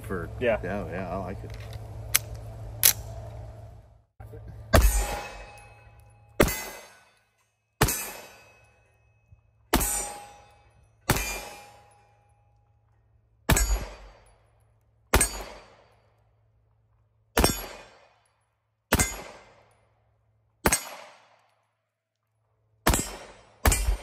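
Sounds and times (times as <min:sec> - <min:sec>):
pistol shots echoing: 0:11.1 - 0:11.8, 0:13.5 - 0:14.3, 0:15.1 - 0:15.9, 0:17.4 - 0:18.2, 0:18.9 - 0:19.7, 0:20.6 - 0:21.5, 0:22.8 - 0:24.0.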